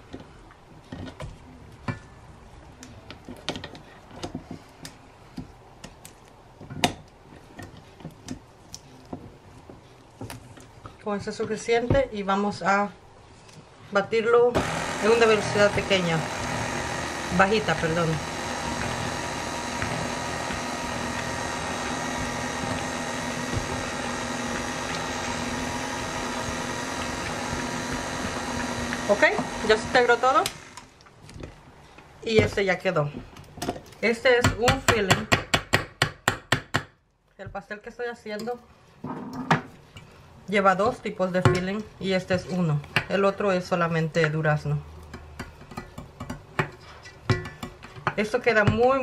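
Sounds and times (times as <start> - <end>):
stand mixer motor humming: 14.6 - 30.7.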